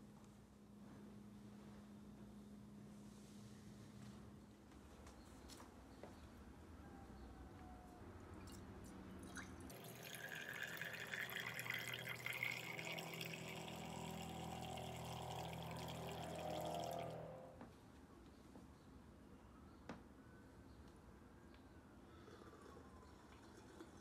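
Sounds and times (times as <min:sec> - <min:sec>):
coffee pouring into carafe: 0:08.4 - 0:17.4, 0:22.3 - 0:24.0.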